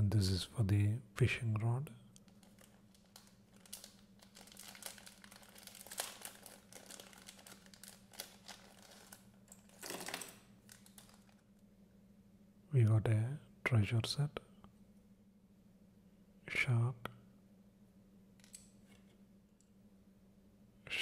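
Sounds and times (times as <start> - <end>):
plastic packaging crinkling: 2.2 - 11.5.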